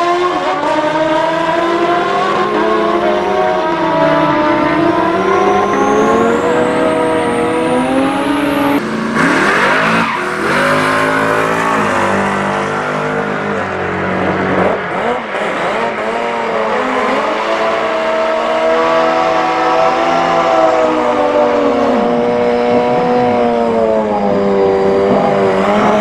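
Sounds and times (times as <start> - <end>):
motorcycle engines revving: 0.0 - 26.0
tyre squealing in burnout: 3.1 - 13.8.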